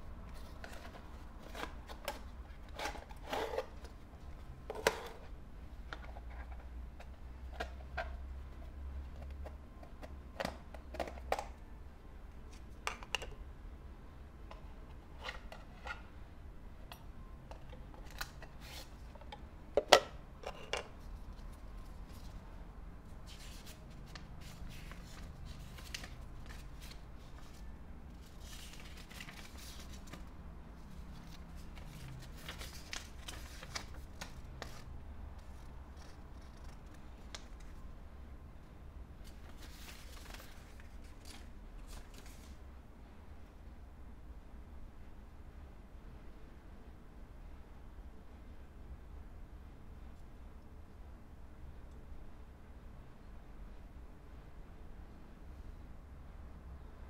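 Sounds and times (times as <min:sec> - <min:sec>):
paper leaflet rustling: 0:23.2 - 0:37.8, 0:39.2 - 0:42.6.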